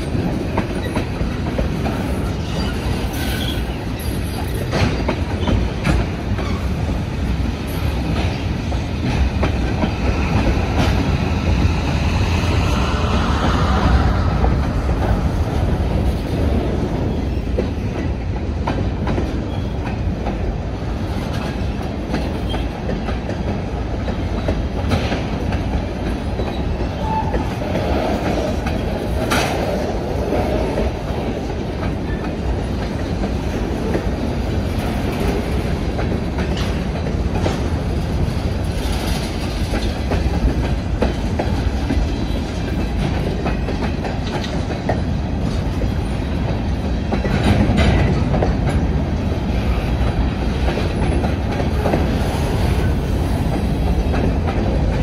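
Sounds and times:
train low rumble: 0:00.0 - 0:55.0
wheels clattering over rail joints: 0:14.4 - 0:55.0.

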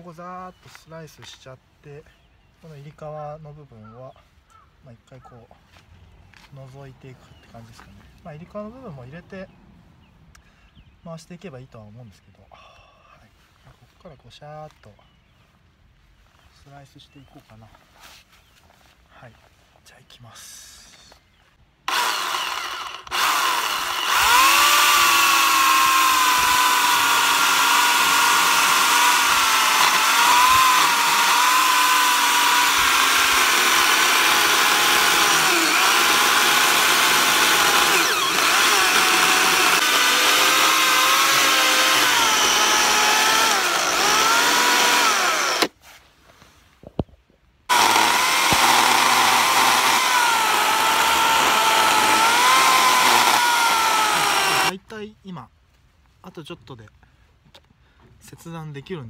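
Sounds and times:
electric chainsaw cutting log: 0:21.9 - 0:45.8, 0:47.7 - 0:54.7.

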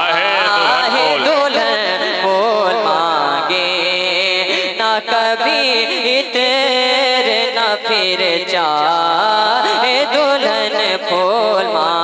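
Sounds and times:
man singing into a microphone: 0:00.0 - 0:12.0
singer breathing: 0:04.4 - 0:04.8, 0:09.5 - 0:10.0.

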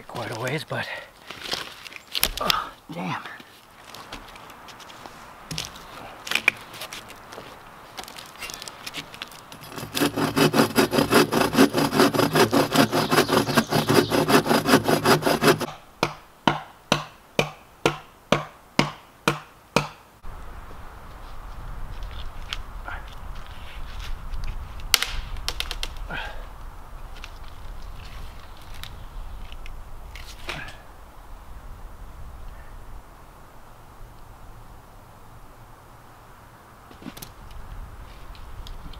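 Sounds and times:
hand saw cutting log: 0:09.5 - 0:15.8.

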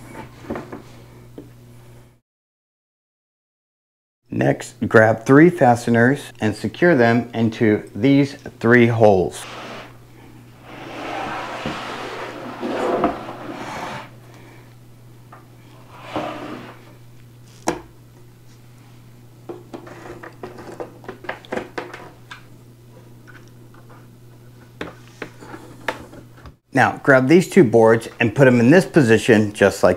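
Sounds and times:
boards sliding and scraping: 0:09.3 - 0:14.2, 0:15.8 - 0:16.9.

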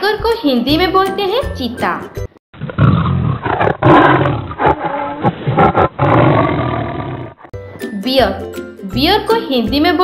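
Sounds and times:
tiger roaring: 0:02.6 - 0:07.5.

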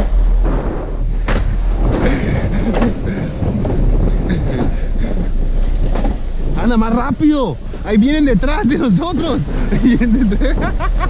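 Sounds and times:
coaster wheels rumbling on rail: 0:00.0 - 0:11.0.

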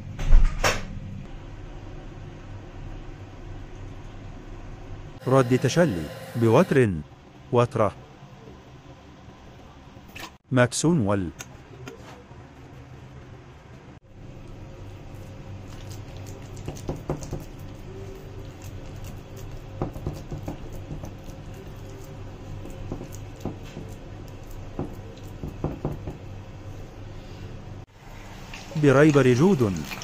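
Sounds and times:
hand kneading wet mixture: 0:14.3 - 0:25.6, 0:28.6 - 0:30.0.

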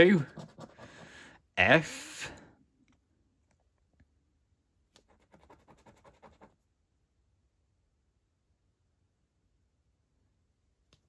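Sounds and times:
coin scratching scratchcard: 0:00.0 - 0:00.9, 0:05.1 - 0:06.5.

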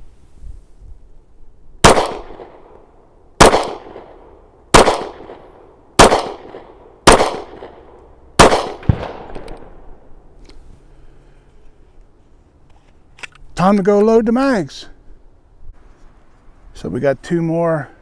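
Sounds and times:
pistol shots: 0:01.8 - 0:02.8, 0:03.4 - 0:09.7.

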